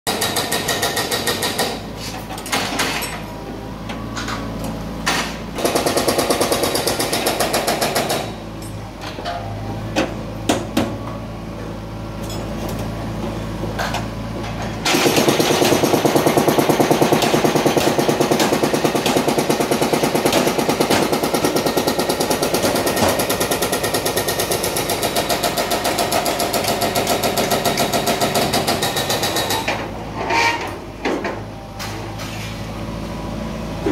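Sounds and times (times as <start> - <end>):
hydraulic breaker hammering concrete: 0.1 - 1.8, 5.6 - 8.4, 14.8 - 29.8
excavator engine hum: 0.1 - 17.6, 18.7 - 33.9.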